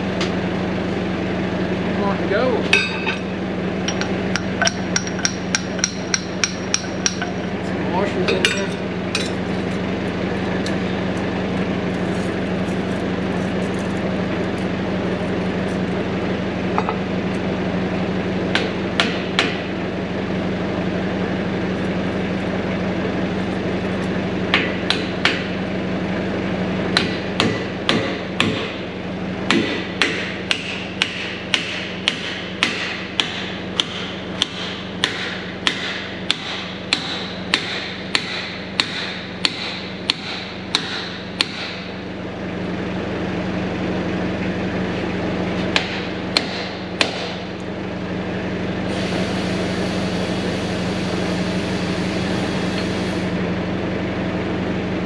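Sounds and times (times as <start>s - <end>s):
steady low hum: 0.0s - 55.0s
hammer striking metal: 2.7s - 3.2s, 3.9s - 7.4s, 8.3s - 9.4s, 27.0s - 28.8s, 29.5s - 41.8s, 45.7s - 47.4s.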